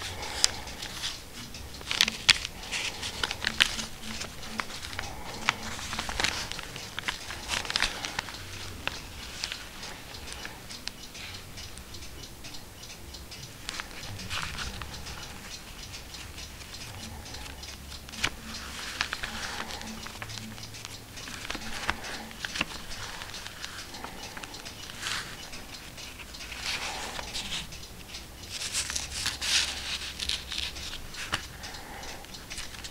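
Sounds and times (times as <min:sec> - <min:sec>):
sharp clicks: 0:00.0 - 0:32.9
stiff paper rustling and crackling: 0:01.8 - 0:10.0.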